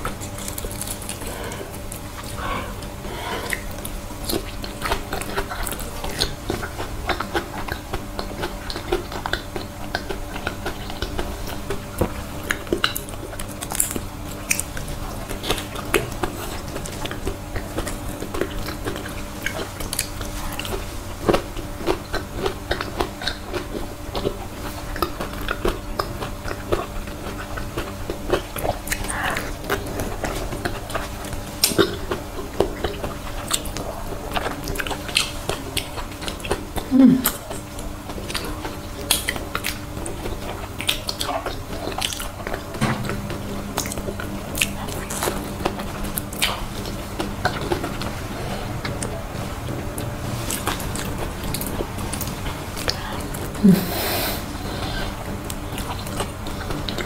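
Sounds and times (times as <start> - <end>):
close-up chewing: 0.0 - 57.0
faint steady hum: 0.0 - 57.0.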